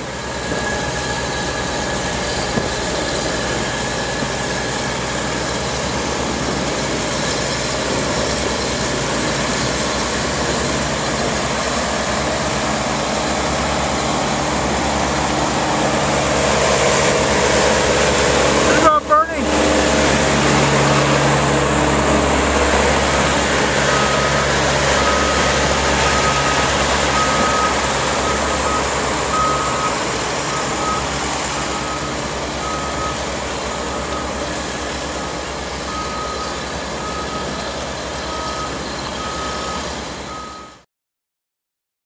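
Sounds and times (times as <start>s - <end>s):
diesel paving machinery running: 0.0s - 40.8s
reversing alarm beeping: 20.7s - 40.8s.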